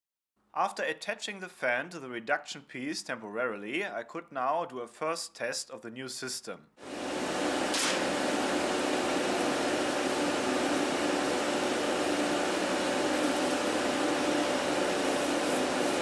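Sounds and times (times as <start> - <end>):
fan blowing air: 6.8 - 16.0.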